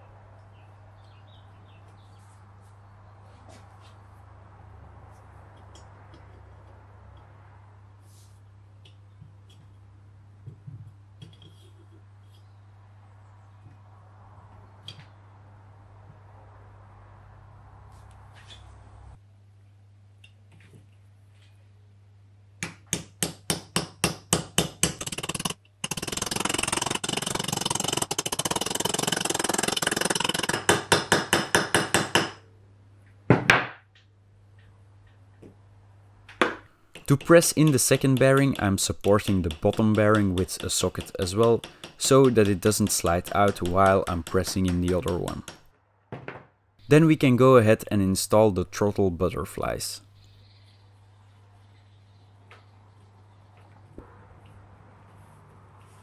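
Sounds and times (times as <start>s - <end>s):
hammer tapping on metal: 36.4s - 45.7s
low hum: 50.0s - 56.0s.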